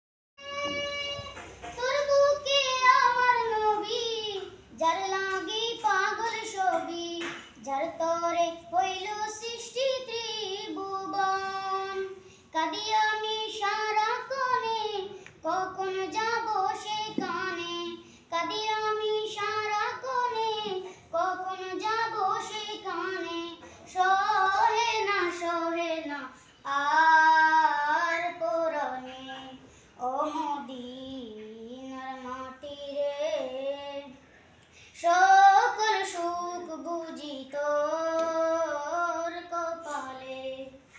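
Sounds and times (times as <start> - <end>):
boys singing without instruments: 0.4 - 34.2, 35.0 - 40.9.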